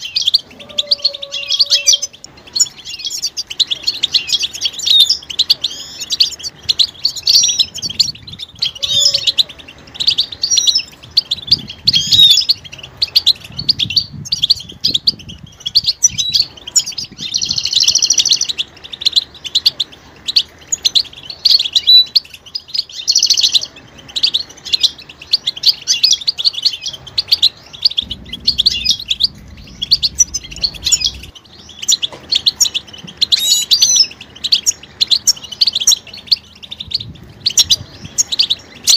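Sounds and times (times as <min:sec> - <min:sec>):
buzzy bird trills: 0:00.0 - 0:38.9
finches twittering and calling: 0:00.0 - 0:38.9.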